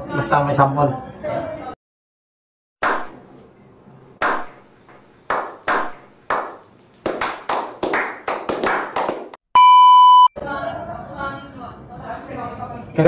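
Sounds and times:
people slow clapping: 5.3s - 9.4s.

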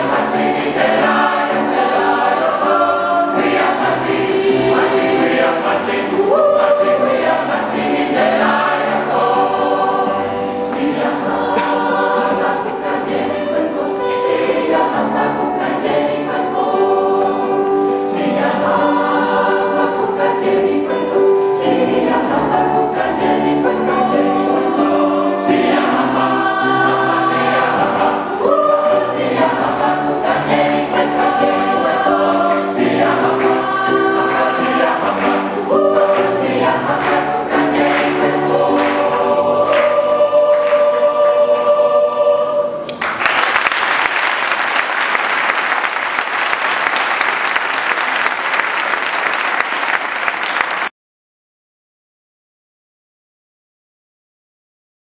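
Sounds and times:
gospel choir singing: 0.0s - 43.2s
audience applauding: 34.2s - 39.9s, 42.9s - 50.9s.

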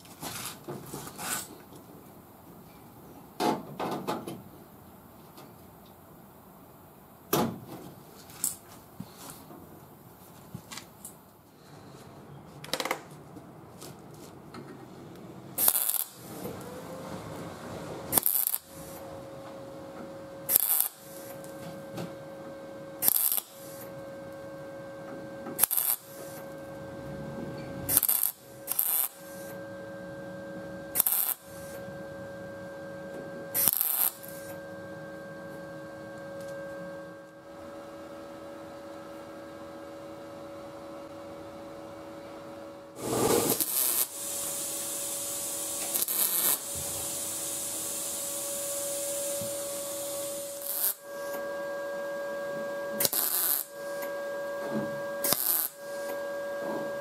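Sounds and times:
welder hum: 15.5s - 57.0s
welding crackle: 15.6s - 16.7s, 18.1s - 19.1s, 20.4s - 21.8s, 22.9s - 24.5s, 25.6s - 26.7s, 27.8s - 29.6s, 30.9s - 31.9s, 33.5s - 34.6s, 43.0s - 51.6s, 53.0s - 54.2s, 55.2s - 56.3s.

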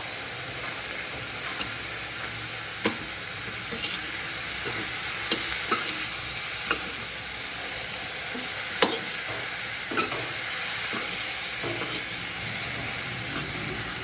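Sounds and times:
broccoli sizzling in a pan: 0.0s - 14.0s.

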